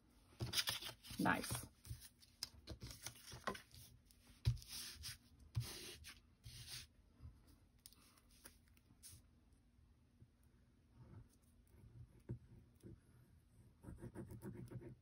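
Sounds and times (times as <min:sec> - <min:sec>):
cardstock rustling and sliding: 0:00.4 - 0:06.8.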